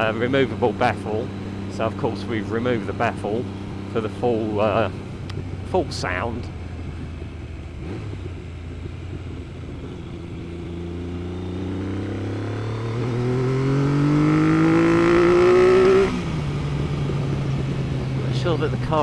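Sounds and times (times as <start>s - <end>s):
motorcycle engine revving: 0.0s - 19.0s.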